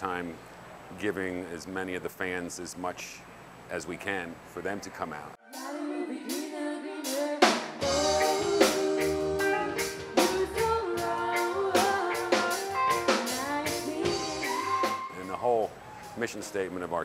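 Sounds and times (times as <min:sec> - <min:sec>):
woman singing lead: 0:05.4 - 0:15.2
backing singers: 0:05.5 - 0:16.4
drum kit: 0:06.3 - 0:16.4
electric guitar: 0:07.8 - 0:15.1.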